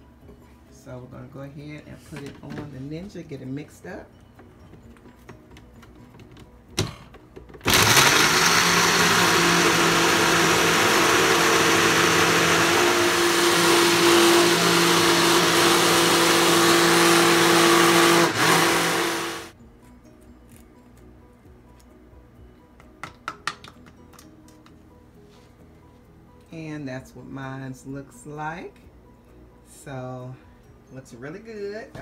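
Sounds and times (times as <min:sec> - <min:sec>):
blender motor running: 0:07.6 - 0:19.6.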